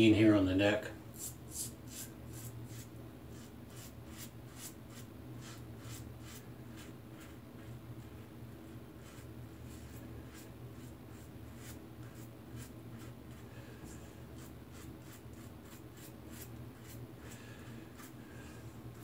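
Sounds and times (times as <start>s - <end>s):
razor scraping stubble: 1.2s - 7.4s, 9.0s - 13.4s, 14.4s - 18.2s.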